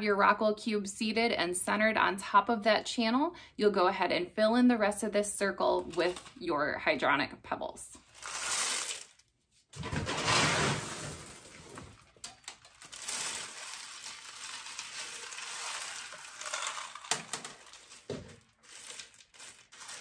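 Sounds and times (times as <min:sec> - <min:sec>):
clay pebbles rattling: 0:09.8 - 0:20.0
pebbles clattering and clicking: 0:10.8 - 0:20.0.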